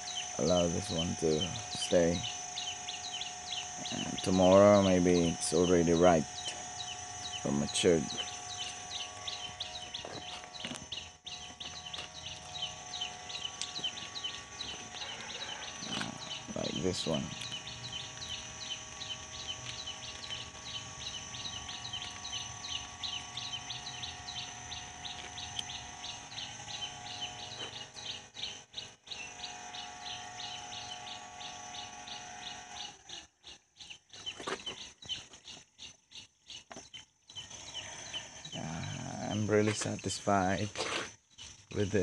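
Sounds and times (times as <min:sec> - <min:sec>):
steady high tone: 0:00.0 - 0:18.0
small bird chirping: 0:00.0 - 0:42.0.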